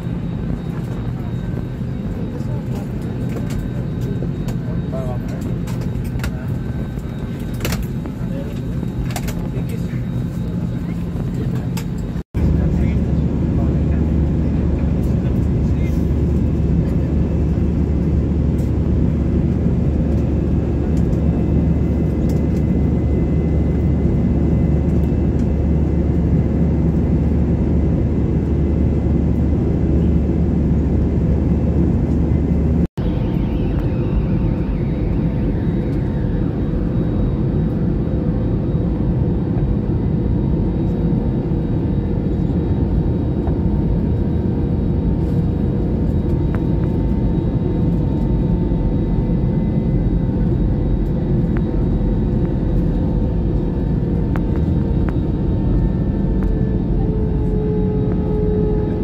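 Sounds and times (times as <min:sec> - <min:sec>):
airliner cabin engine roar: 0:00.0 - 0:59.0
falling pitched whine: 0:27.5 - 0:39.0.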